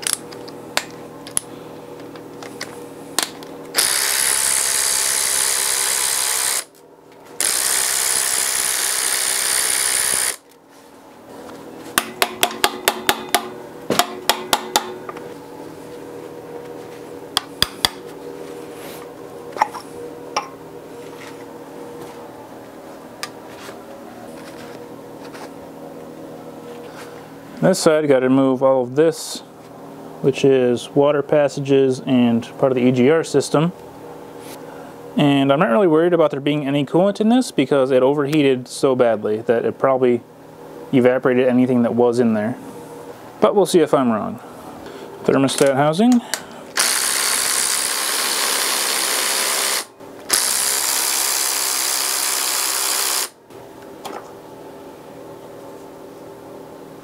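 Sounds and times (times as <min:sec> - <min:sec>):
power tool spinning out bolts: 0:03.7 - 0:06.8, 0:07.4 - 0:10.5, 0:46.8 - 0:53.4.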